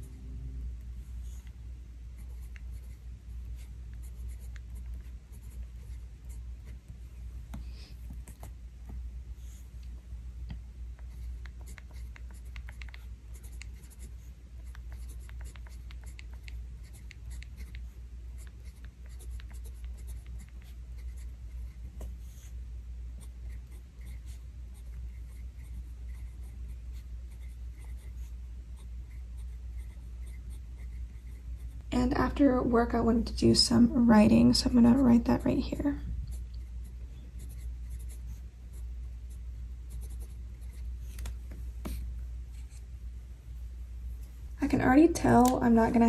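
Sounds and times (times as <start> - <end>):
low steady hum: 0.0 - 46.0
fountain pen scratching on paper: 2.2 - 6.8, 11.0 - 22.6, 23.2 - 31.8, 36.3 - 42.8.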